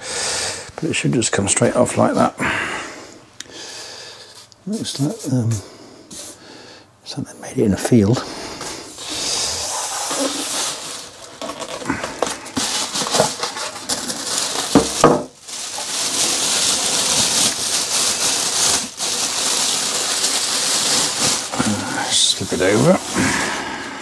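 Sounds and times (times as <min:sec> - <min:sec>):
plastic bag crinkling: 0:08.6 - 0:24.0.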